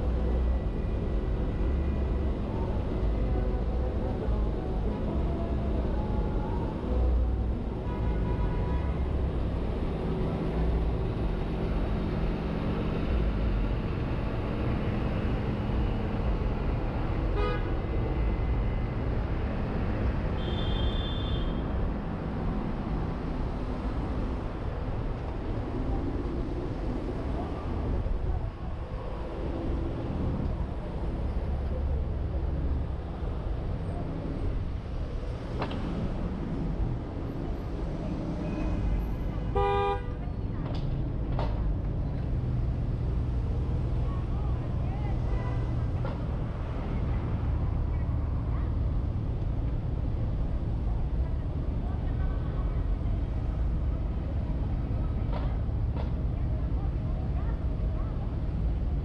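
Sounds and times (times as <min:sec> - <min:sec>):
traffic rumble of engines and tyres: 0:00.0 - 0:59.0
car horn honking: 0:39.6 - 0:40.1.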